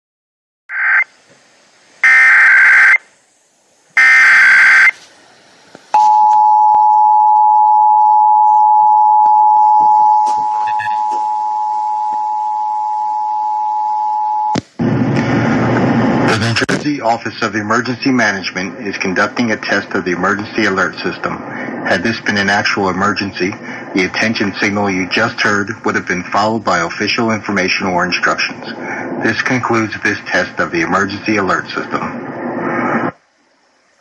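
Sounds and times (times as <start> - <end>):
digital header tone bursts: 2.0 - 3.0, 4.0 - 5.0
two-tone attention signal: 6.0 - 14.5
announcer speaking: 10.2 - 11.2, 16.3 - 32.1.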